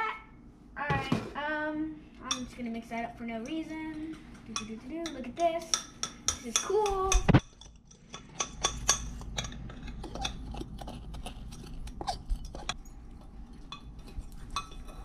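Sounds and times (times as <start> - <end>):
spoon stirring in ceramic mug: 3.4 - 15.0.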